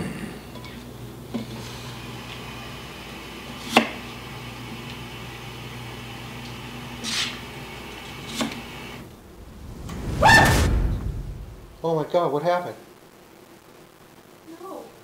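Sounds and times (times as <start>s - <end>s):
electrical hum of appliances: 0.0s - 9.4s
brief swish: 9.0s - 11.9s.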